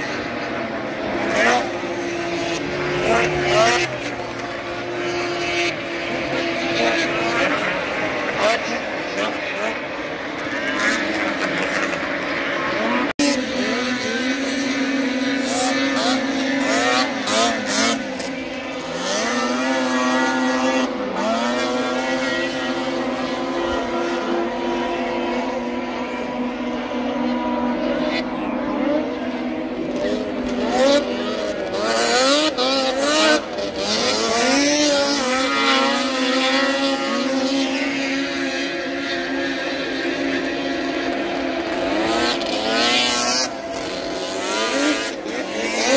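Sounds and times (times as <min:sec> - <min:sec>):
snowmobile engines revving: 0:00.0 - 0:45.9.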